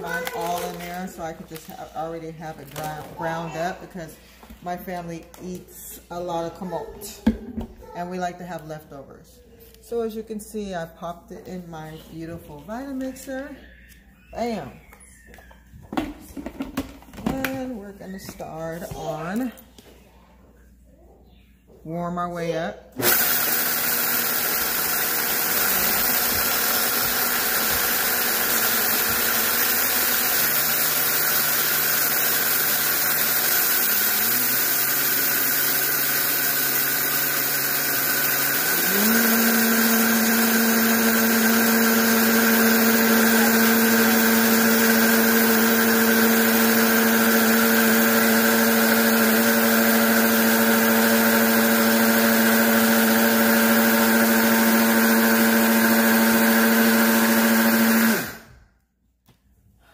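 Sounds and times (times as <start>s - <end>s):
blender motor whining: 0.0s - 3.7s, 23.0s - 58.6s.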